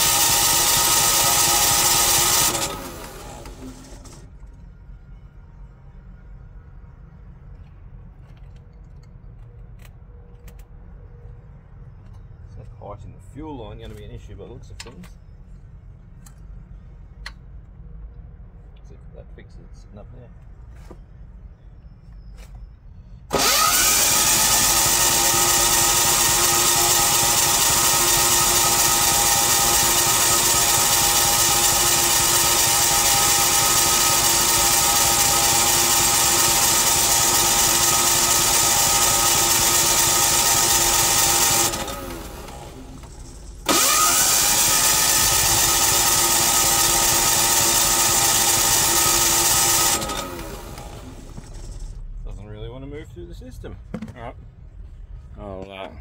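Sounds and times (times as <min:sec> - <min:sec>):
electric starter cranking engine: 0:00.0 - 0:04.4, 0:23.3 - 0:52.0.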